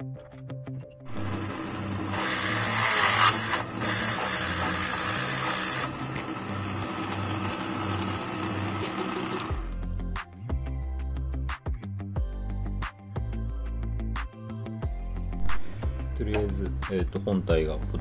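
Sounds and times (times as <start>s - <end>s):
background music: 0.0s - 18.0s
electric drill cutting metal: 1.1s - 9.8s.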